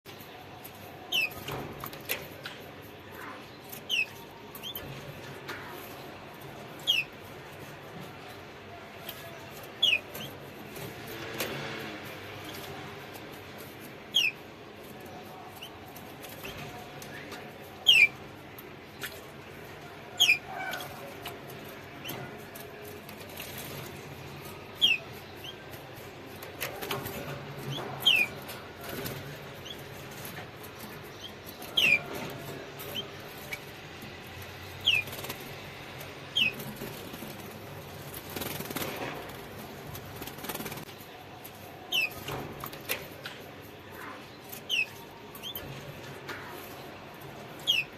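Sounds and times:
canary chirping: 0.0 - 47.9.

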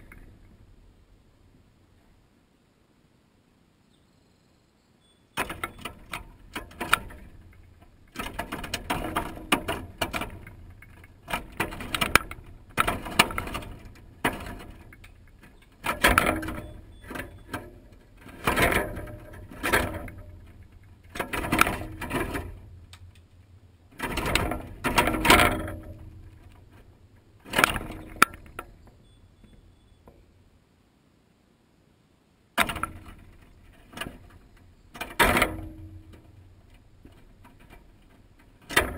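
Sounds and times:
peanuts rattling in wire feeder: 5.4 - 23.2.

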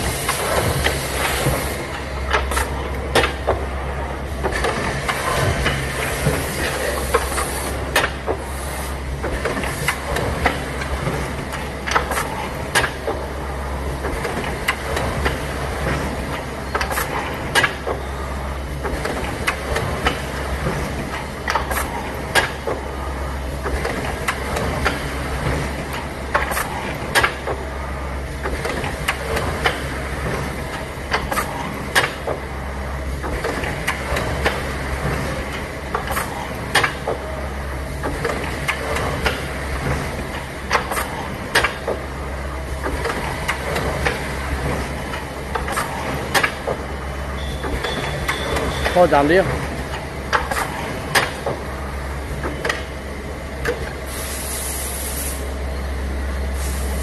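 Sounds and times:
drilling machine humming and clattering: 0.0 - 57.0
sharp machine clacks: 47.4 - 49.5.

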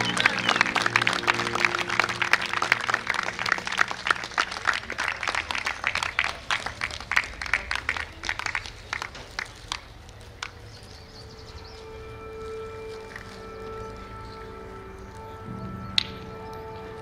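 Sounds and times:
music: 0.0 - 4.7, 10.9 - 17.0
spectators applauding: 0.0 - 10.6.

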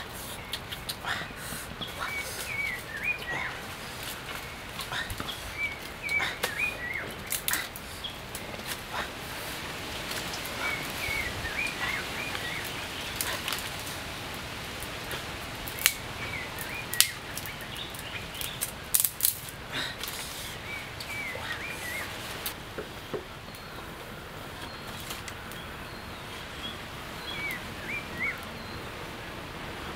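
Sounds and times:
sharp clicks or snaps: 15.7 - 16.0.

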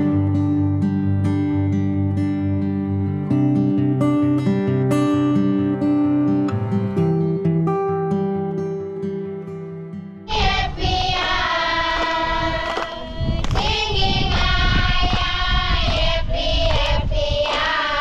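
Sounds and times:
plucked acoustic guitar: 0.0 - 10.2
children singing together: 10.3 - 18.0.

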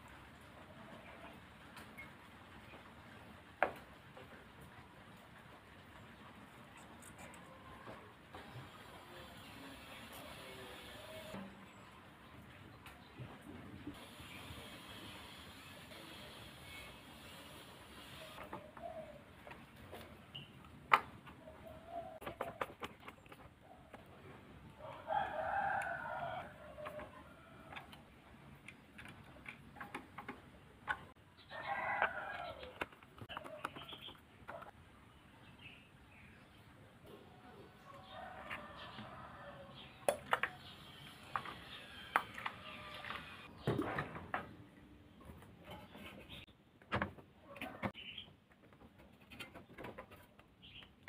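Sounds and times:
rooster crowing: 24.8 - 27.7.

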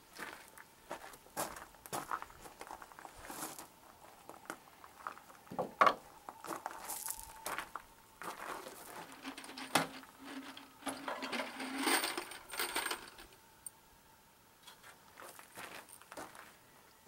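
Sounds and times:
rustling handling noises: 6.2 - 13.3
small metal objects clinking: 8.9 - 13.4.

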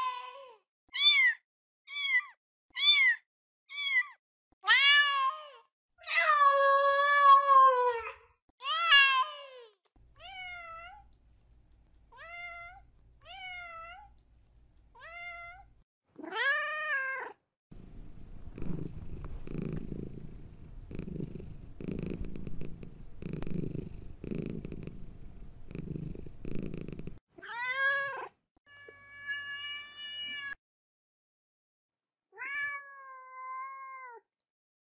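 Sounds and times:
cat meowing: 1.0 - 5.4, 15.0 - 17.4, 32.4 - 34.2
cat purring: 17.7 - 27.2.

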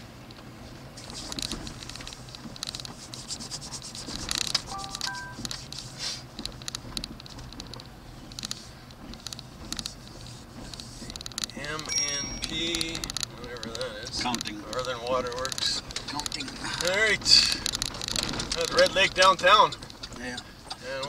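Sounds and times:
low steady vehicle hum: 0.0 - 21.0
rapid clicking and scratching: 1.0 - 21.0
brief pitched tones: 4.7 - 5.4.

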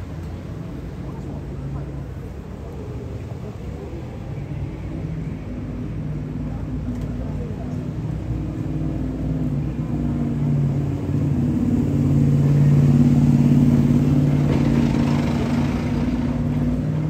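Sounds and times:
vehicle engine running: 5.3 - 17.0.

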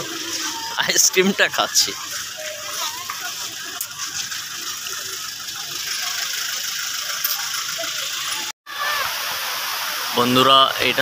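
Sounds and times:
distant crowd voices: 0.0 - 9.2
steady hiss: 7.8 - 11.0.

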